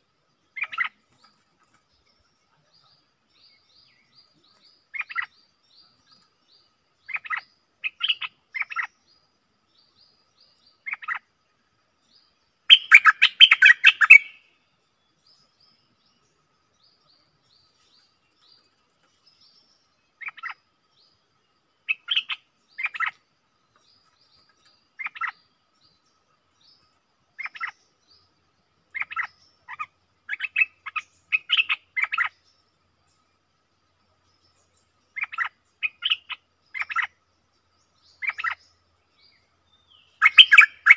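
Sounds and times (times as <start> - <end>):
bulbul calling in bright phrases: 0.5 - 1.0, 2.1 - 5.9, 7.0 - 9.2, 10.7 - 11.3, 12.7 - 14.6, 19.4 - 20.6, 21.8 - 23.2, 24.9 - 26.0, 27.4 - 28.2, 28.9 - 32.7, 34.4 - 37.2, 37.8 - 40.9
harsh rapid bird call burst: 12.7 - 14.4, 40.2 - 40.9.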